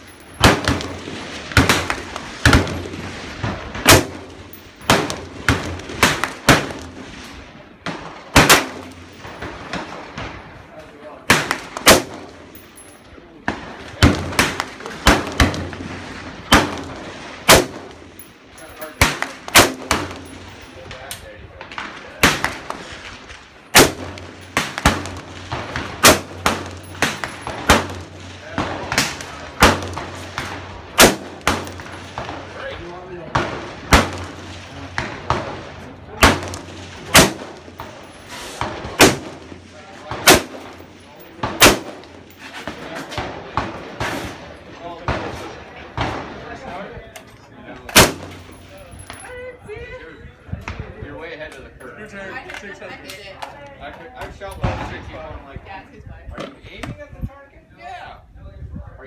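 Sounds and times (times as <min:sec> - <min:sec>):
rifle shots with echo: 0:00.2 - 0:46.8, 0:47.9 - 0:49.1
distant gunshots: 0:00.4 - 0:07.2, 0:07.8 - 0:10.4, 0:13.5 - 0:18.0, 0:19.0 - 0:20.5, 0:21.7 - 0:32.6, 0:33.2 - 0:38.0, 0:38.6 - 0:42.2.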